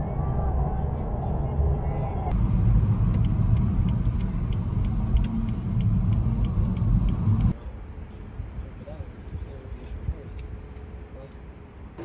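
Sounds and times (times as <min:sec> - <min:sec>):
car road and engine rumble: 0:00.0 - 0:12.0
turn signal ticking: 0:02.3 - 0:07.6.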